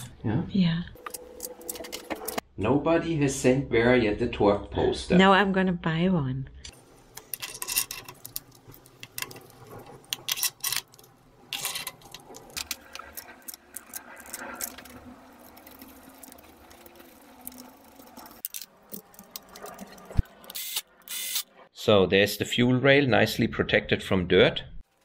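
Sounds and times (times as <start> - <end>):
metal parts clicking and tapping: 7.1 - 14.9.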